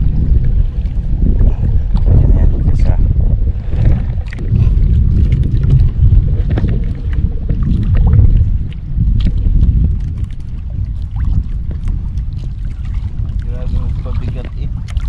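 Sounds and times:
wind and sea rumble: 0.0s - 15.0s.

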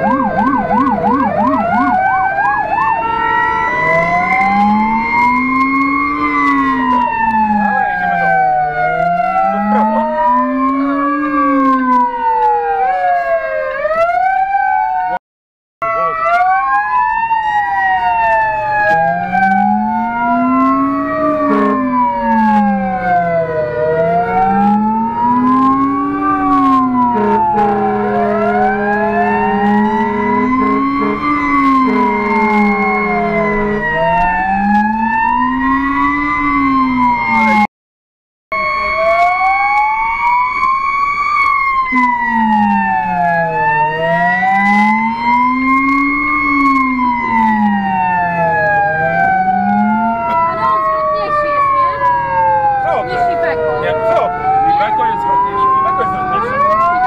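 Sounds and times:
fire engine siren wailing: 0.0s - 15.2s, 15.8s - 37.7s, 38.5s - 57.0s
low rumbler siren tone: 0.0s - 15.2s, 15.8s - 37.7s, 38.5s - 57.0s
steady horn tone: 8.9s - 11.2s, 18.8s - 23.0s, 23.8s - 37.1s, 41.9s - 47.5s.

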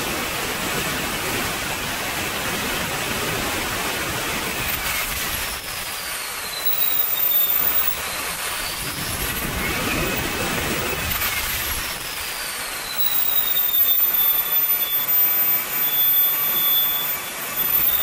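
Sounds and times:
jet turbine roaring and whining: 0.0s - 18.0s.

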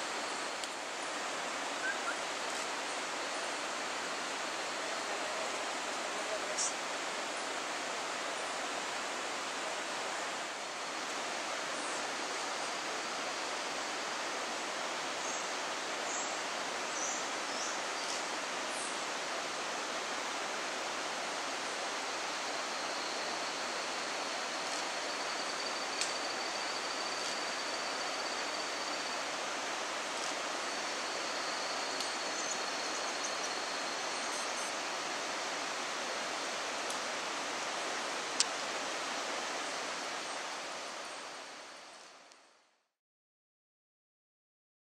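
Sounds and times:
forest ambience hiss: 0.0s - 42.9s
thin high steady whine: 7.3s - 42.6s.

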